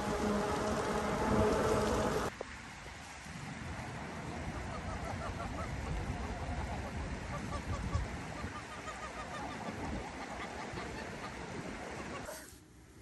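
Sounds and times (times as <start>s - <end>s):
wind rumble on microphone: 0.0s - 12.3s
ducks quacking and honking: 4.5s - 12.4s.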